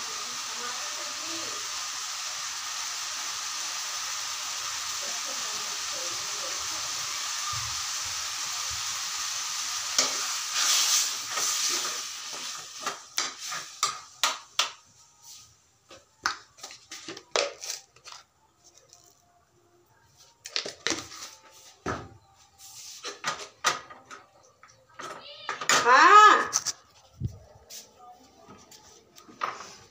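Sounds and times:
steady hiss: 0.0 - 15.7.

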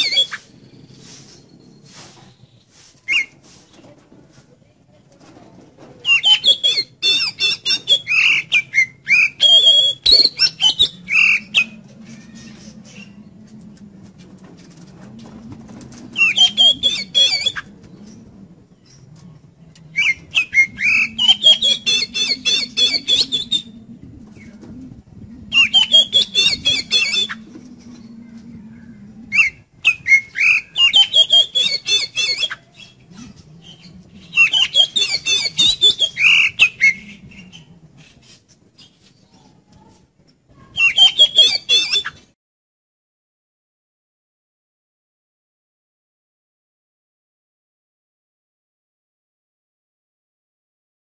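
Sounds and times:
bird singing: 16.2 - 19.1.

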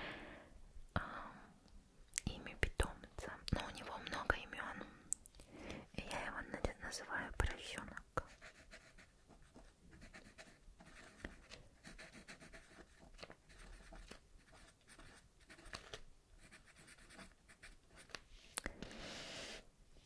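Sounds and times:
pen scratching on paper: 8.3 - 18.2.

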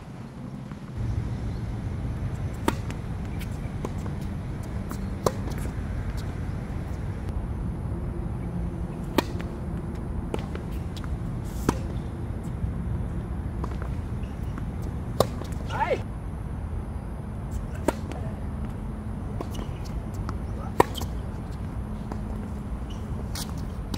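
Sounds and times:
steady low rumble: 0.0 - 23.9
tennis ball struck by racket: 2.4 - 6.2, 9.0 - 12.2, 13.6 - 15.7, 17.8 - 18.2, 19.4 - 21.2.

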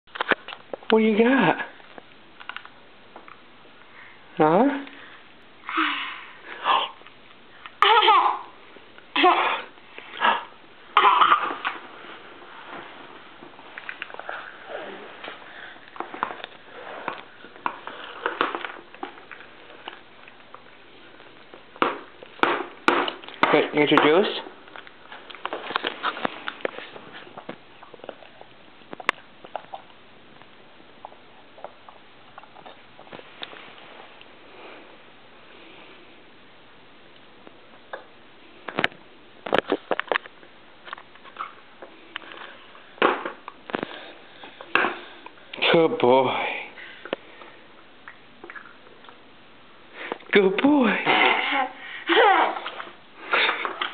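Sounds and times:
baby sucking and gulping: 48.0 - 49.2.

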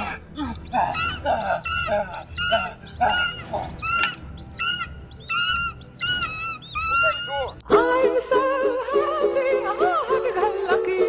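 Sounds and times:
bird screeching calls: 0.0 - 7.6
lower hoarse bird calls: 0.0 - 7.6.

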